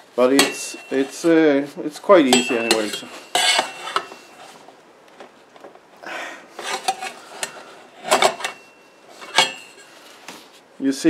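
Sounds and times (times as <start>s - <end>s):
sharp metallic clanks: 0.3s - 1.3s, 2.2s - 4.4s, 6.8s - 9.9s
metal scraping on metal: 0.3s - 1.5s, 2.2s - 4.6s, 6.6s - 10.1s.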